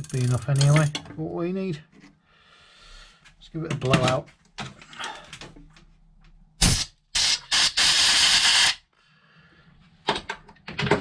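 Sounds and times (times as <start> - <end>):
compressed air hissing bursts: 6.6 - 8.8.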